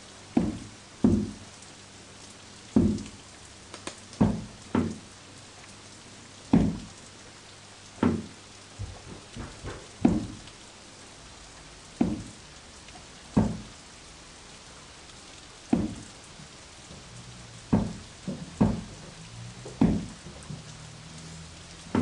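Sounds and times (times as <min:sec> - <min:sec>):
dull thuds or drips: 0:00.3 - 0:01.6, 0:02.6 - 0:05.7, 0:06.4 - 0:07.1, 0:07.9 - 0:10.8, 0:11.8 - 0:14.0, 0:15.1 - 0:22.0.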